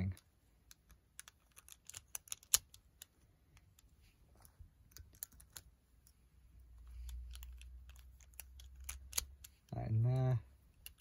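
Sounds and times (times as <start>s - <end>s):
plastic puzzle cube pieces clicking: 0.0s - 3.8s, 4.9s - 5.7s, 7.0s - 9.7s, 10.7s - 11.0s.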